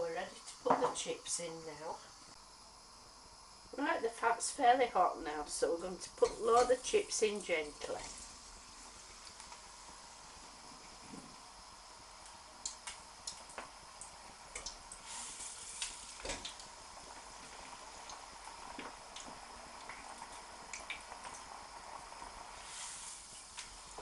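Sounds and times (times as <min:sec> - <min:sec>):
chips sizzling in hot oil: 0:05.1 - 0:24.0.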